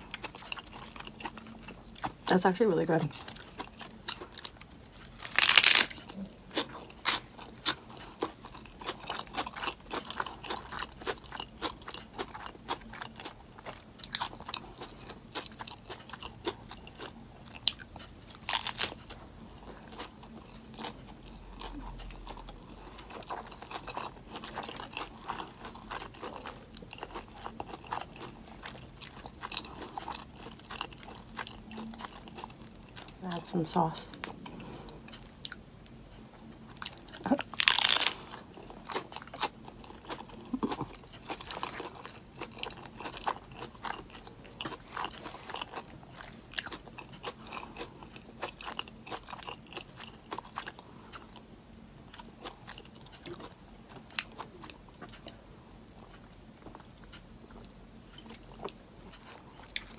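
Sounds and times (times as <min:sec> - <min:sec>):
chewing with small clicks: 0:00.0 - 0:02.2, 0:06.0 - 0:59.9
lettuce crunching: 0:03.2 - 0:13.4, 0:14.0 - 0:19.2, 0:36.8 - 0:50.5.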